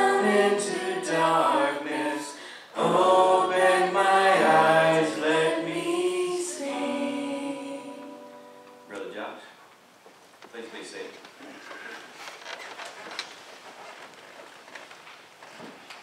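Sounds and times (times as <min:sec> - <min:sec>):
voices singing worship song in harmony: 0:00.0 - 0:09.4.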